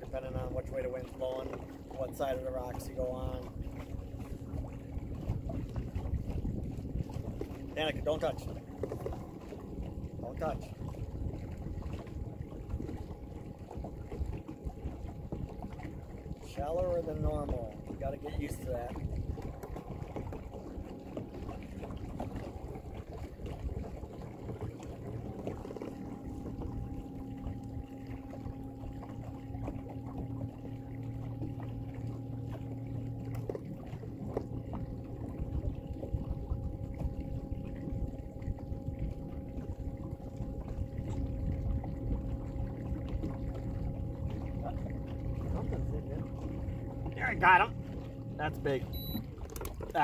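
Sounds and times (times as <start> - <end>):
steady motor hum: 0.0 - 50.0
water sloshing against boat: 0.0 - 50.0
low rumble: 21.4 - 49.4.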